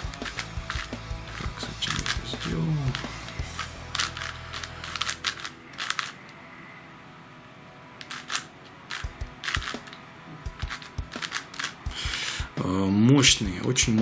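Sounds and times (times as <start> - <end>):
puzzle cube plastic clicks: 0.0 - 6.3, 8.0 - 12.3.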